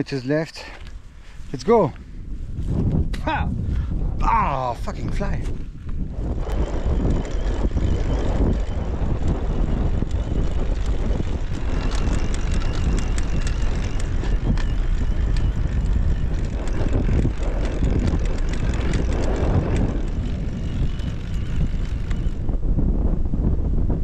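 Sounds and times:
wind buffeting microphone: 0.0s - 24.0s
small clicks: 5.8s - 22.4s.

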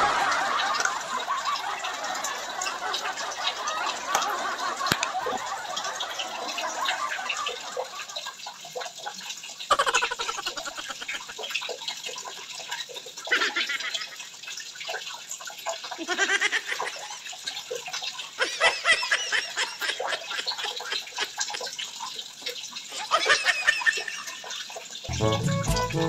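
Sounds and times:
brief high-pitched sounds: 25.1s - 26.0s.

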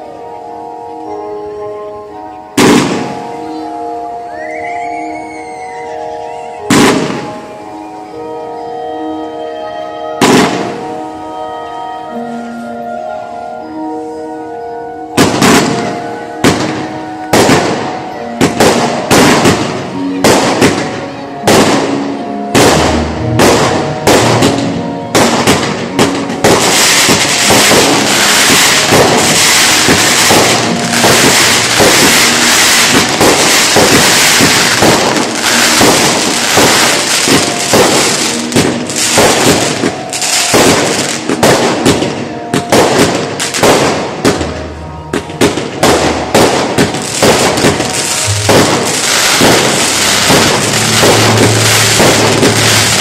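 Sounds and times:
fireworks bangs: 2.6s - 3.3s, 6.7s - 7.4s, 10.2s - 10.9s, 15.2s - 53.0s
fireworks popping and crackling: 2.6s - 3.3s, 6.6s - 7.4s, 10.2s - 10.7s, 15.2s - 53.0s.

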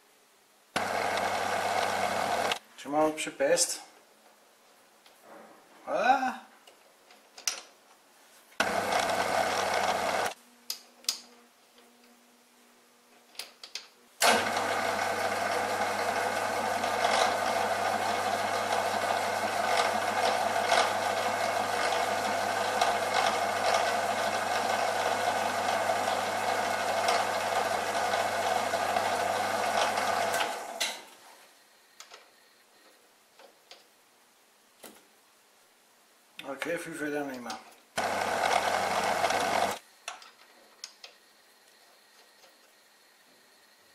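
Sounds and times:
metal lathe humming: 0.8s - 2.6s, 8.6s - 10.4s, 14.2s - 30.8s, 38.0s - 39.8s.

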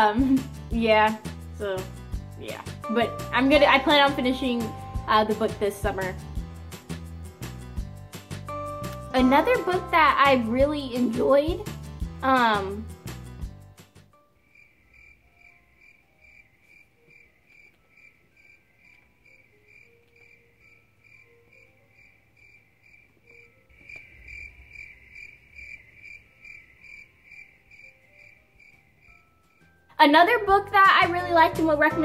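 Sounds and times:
crickets chirping: 14.2s - 29.9s.

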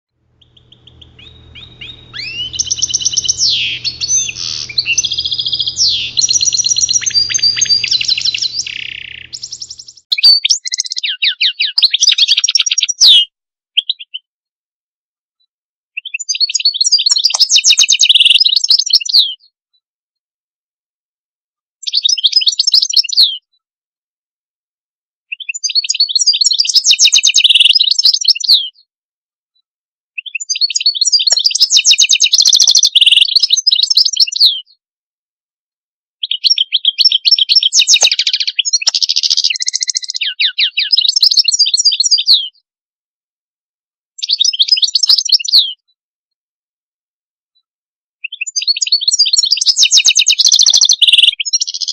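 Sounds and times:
bird twittering trills: 0.4s - 10.1s, 37.0s - 42.2s.

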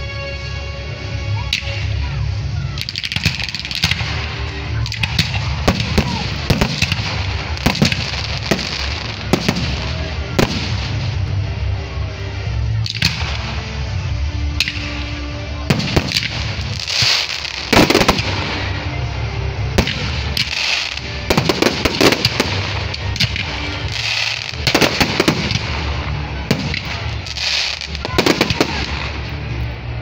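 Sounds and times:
crackling firework stars: 0.0s - 30.0s
firework shells bursting: 2.8s - 11.3s, 15.7s - 18.8s, 19.8s - 29.4s.

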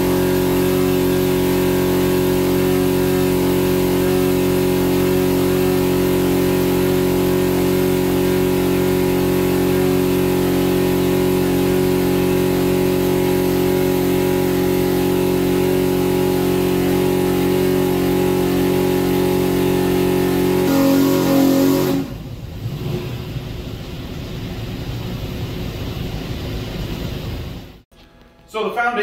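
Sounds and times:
engine running at high rpm: 0.0s - 26.2s.

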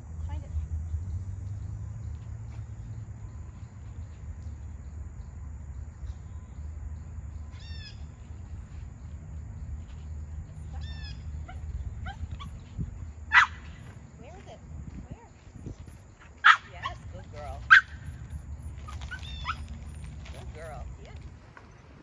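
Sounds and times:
small dog whining and yipping: 10.7s - 12.7s, 18.8s - 20.0s
dog barking: 13.3s - 13.6s, 16.4s - 17.0s, 17.7s - 18.0s.

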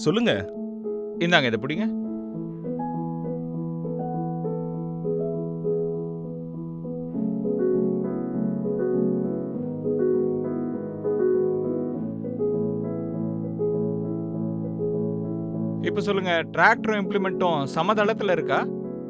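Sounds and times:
slow piano music: 0.0s - 19.0s.

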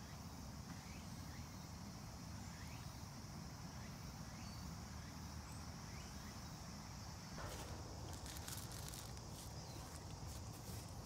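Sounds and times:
rising insect chirps: 3.7s - 11.0s.

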